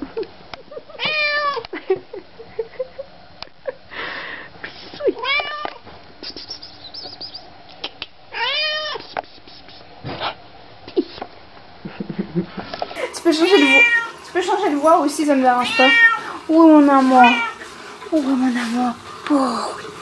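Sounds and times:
cat meowing: 5.2s - 5.8s, 8.3s - 9.0s, 13.5s - 14.2s, 15.6s - 16.4s, 17.2s - 17.6s.

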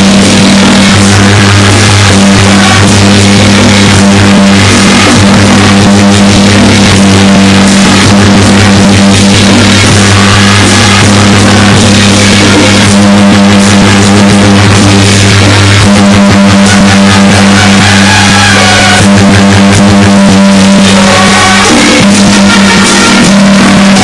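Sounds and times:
loud music over loudspeaker: 0.0s - 24.0s
steady low drone: 0.0s - 24.0s.

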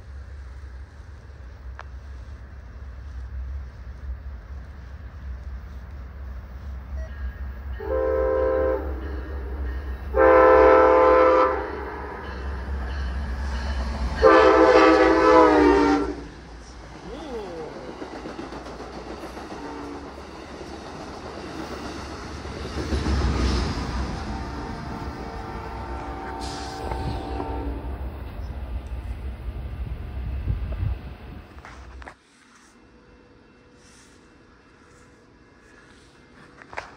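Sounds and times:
locomotive horn blasts: 7.8s - 12.3s, 14.2s - 16.3s, 24.1s - 28.1s.

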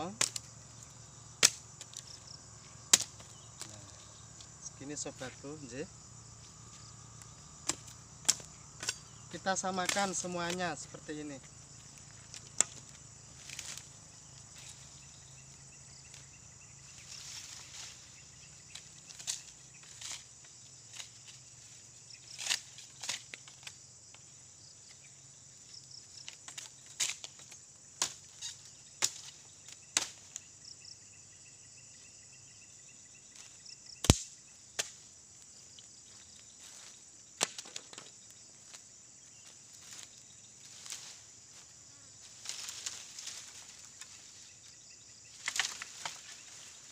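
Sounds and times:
bamboo cracking and rustling: 0.0s - 15.4s, 16.9s - 25.0s, 25.7s - 30.5s, 33.3s - 44.7s, 45.3s - 46.9s
insects trilling: 0.0s - 46.9s.

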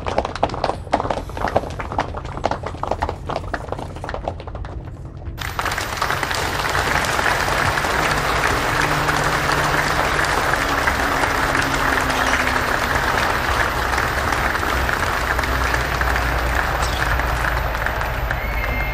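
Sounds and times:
crowd applauding: 5.4s - 18.9s.

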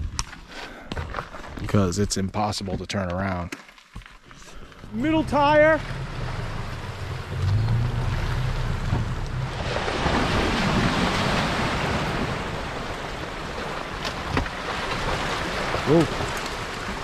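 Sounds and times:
low engine hum: 4.7s - 13.0s
tyres rushing on road: 4.9s - 13.7s.

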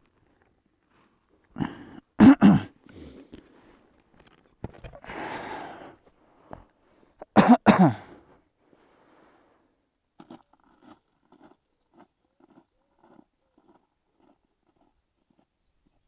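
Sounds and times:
person coughing: 1.6s - 3.1s, 7.4s - 8.2s.

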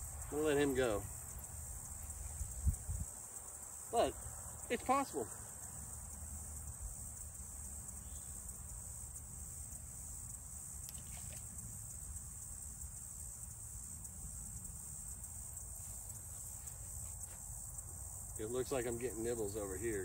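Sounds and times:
insects chirping: 0.0s - 20.0s
faint clicks: 10.8s - 11.5s.

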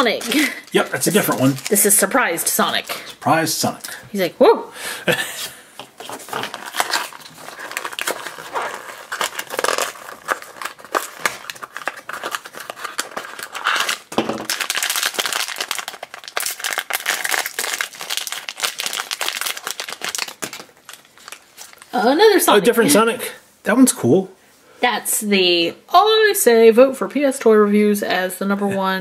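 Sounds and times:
foil pouch crinkling: 0.0s - 3.2s, 5.9s - 22.0s
cardboard box tearing: 6.0s - 15.0s.

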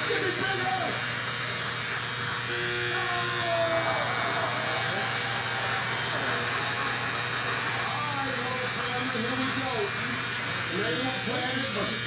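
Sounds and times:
electric hair clippers buzzing: 0.0s - 12.0s.

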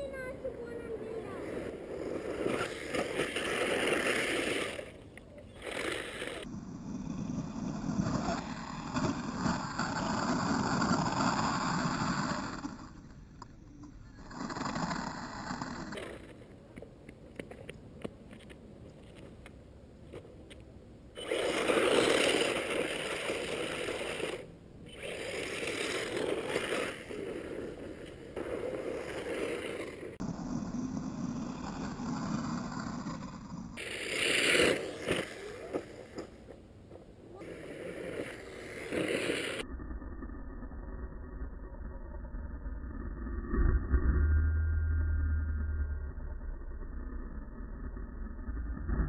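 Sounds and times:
rc car tumbling: 0.0s - 16.6s, 21.2s - 39.7s
rc car motor running: 5.6s - 13.1s, 21.2s - 36.3s, 37.4s - 41.1s.

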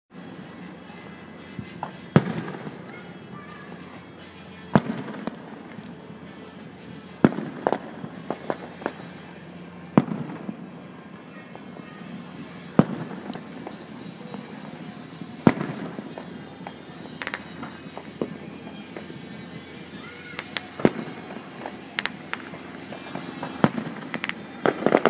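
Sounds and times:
firework pops and crackles: 1.8s - 3.0s, 4.7s - 6.0s, 7.2s - 9.3s, 9.9s - 10.6s, 12.4s - 25.0s
firework shells booming: 4.7s - 6.0s, 7.2s - 9.2s, 9.9s - 10.7s, 11.7s - 25.0s.

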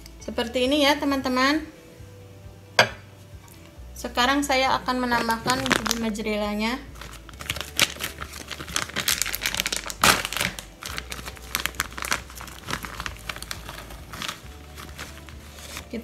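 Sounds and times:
plastic packet crinkling: 5.1s - 6.2s, 6.9s - 16.0s.

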